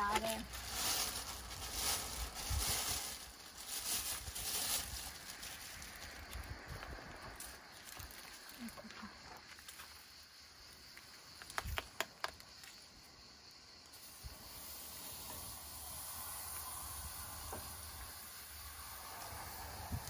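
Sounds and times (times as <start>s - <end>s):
meat sizzling on grill: 13.5s - 20.0s.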